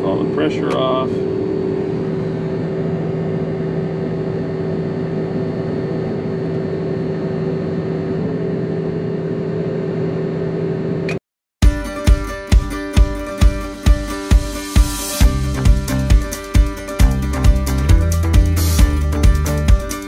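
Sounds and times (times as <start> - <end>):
engine drone from inside cab: 0.0 - 11.2.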